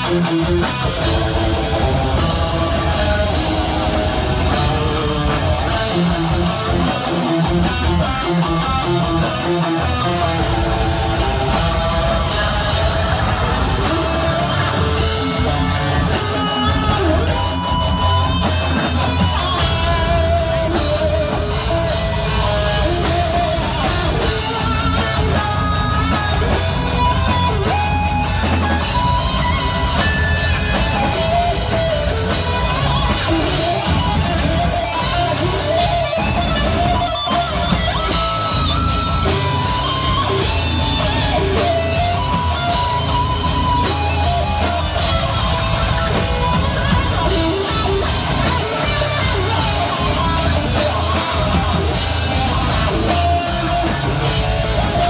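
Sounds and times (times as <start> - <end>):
heavy metal band playing live: 0.0 - 55.0.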